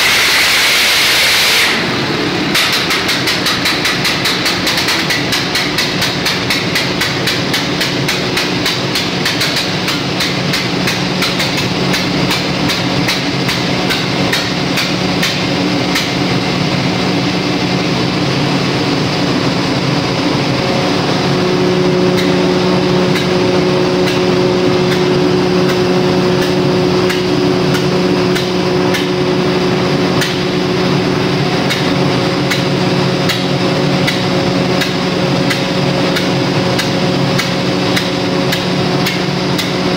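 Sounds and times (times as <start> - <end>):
diesel generator engine running: 0.0 - 39.9
metallic knocking: 2.5 - 16.2.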